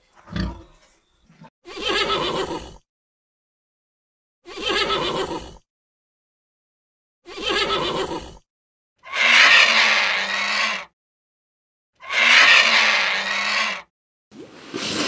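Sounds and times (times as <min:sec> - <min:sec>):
hoarse vulture calls: 0:09.0 - 0:10.9, 0:12.0 - 0:13.9
horse whinnying: 0:09.0 - 0:10.9, 0:12.0 - 0:13.9.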